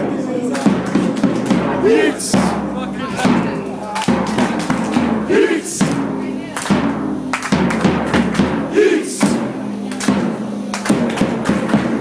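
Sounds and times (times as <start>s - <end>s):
crowd chanting: 0.0s - 6.5s, 7.8s - 9.7s
bass drum beating: 0.0s - 12.0s.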